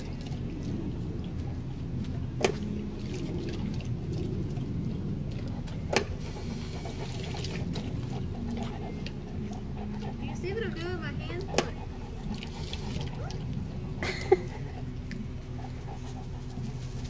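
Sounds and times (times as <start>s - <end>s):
low motor-like rumble: 0.0s - 17.0s.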